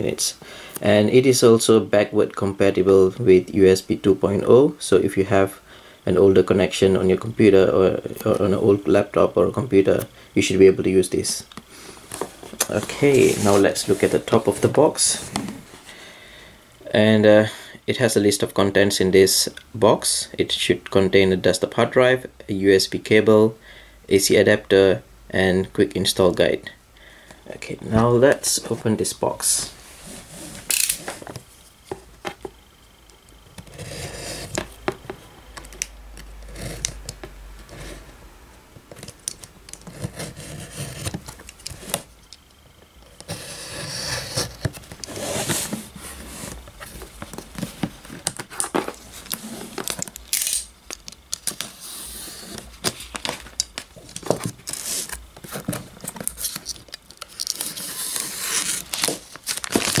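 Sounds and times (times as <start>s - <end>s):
cardboard box opening: 12.1s - 15.7s, 43.2s - 50.1s, 51.5s - 60.0s
plastic wrap tearing and crinkling: 56.0s - 60.0s.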